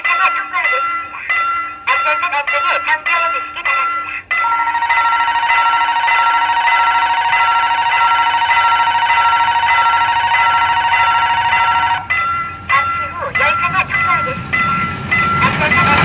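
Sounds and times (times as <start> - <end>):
level crossing alarm ringing: 0.0 - 16.0.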